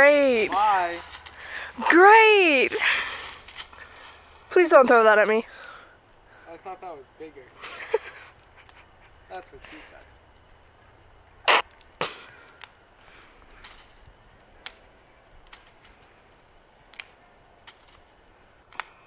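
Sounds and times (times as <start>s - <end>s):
dry stick snapping: 0.2s - 1.8s, 3.0s - 4.9s, 11.5s - 19.0s.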